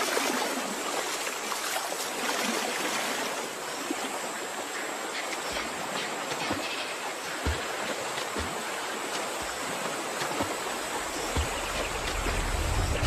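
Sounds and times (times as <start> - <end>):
river water rushing over rocks: 0.0 - 13.0
soft thuds: 9.4 - 13.0
low rumble: 11.2 - 13.0.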